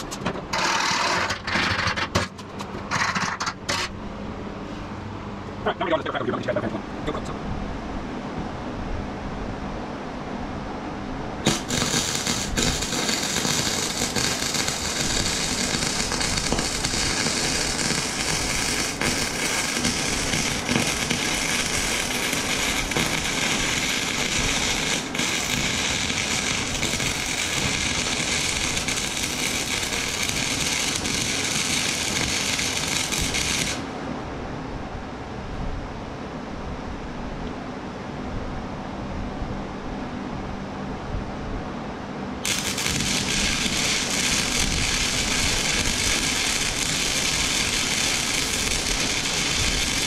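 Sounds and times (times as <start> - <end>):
welder arc crackling: 0.0 - 3.9, 11.4 - 34.0, 42.4 - 50.0.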